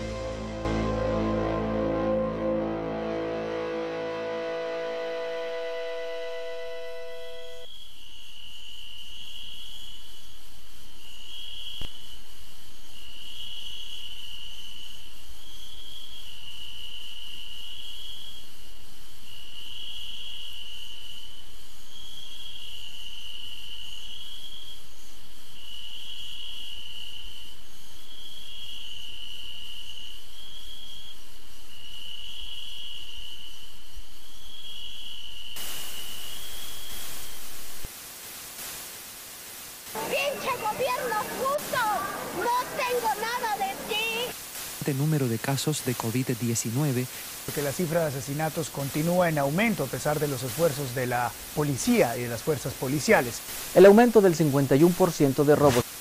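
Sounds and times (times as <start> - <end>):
static-like hiss: 3.4 - 25.6, 35.4 - 56.0
crickets chirping: 5.2 - 56.0.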